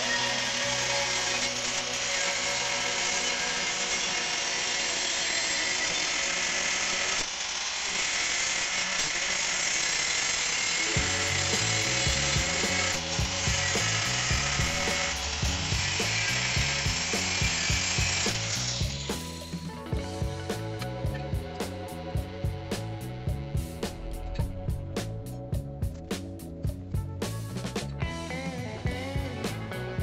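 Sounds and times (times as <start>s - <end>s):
angle grinder cutting steel: 0.0s - 19.6s
background music with beat: 11.0s - 30.0s.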